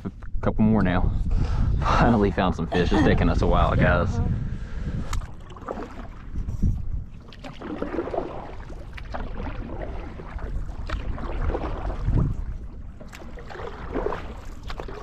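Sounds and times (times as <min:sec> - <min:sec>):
wind rumbling on microphone: 0:00.0 - 0:15.0
paddle strokes sloshing water: 0:05.0 - 0:15.0.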